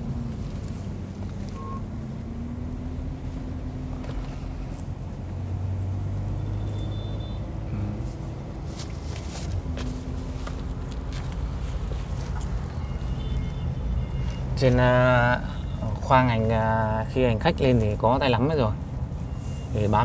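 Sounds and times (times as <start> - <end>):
car engine and road noise: 0.0 - 20.0.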